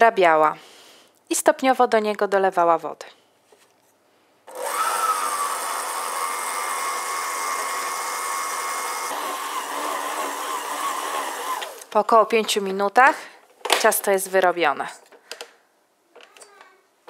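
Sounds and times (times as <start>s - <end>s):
stand mixer motor whining: 4.5s - 11.8s.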